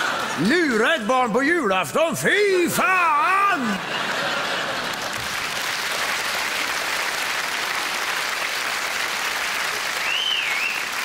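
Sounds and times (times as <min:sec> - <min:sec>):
audience applauding: 0:00.0 - 0:00.9, 0:04.0 - 0:11.0.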